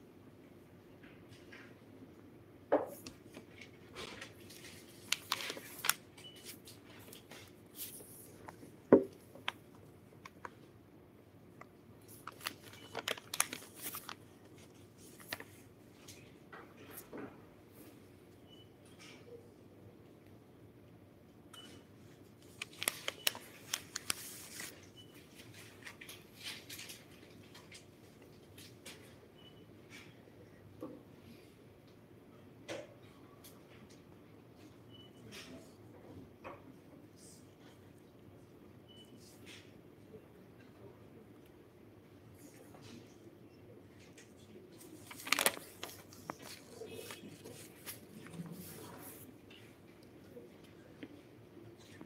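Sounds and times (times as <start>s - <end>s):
objects being handled: 12.1s - 16.2s, 44.8s - 49.7s.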